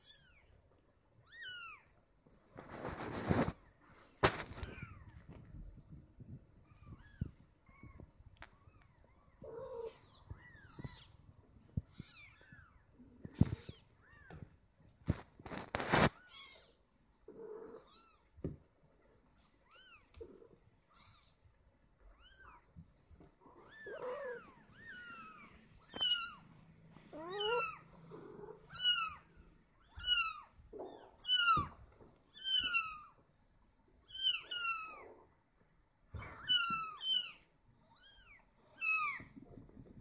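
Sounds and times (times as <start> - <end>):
kitten mewing: 27.1 - 29.2.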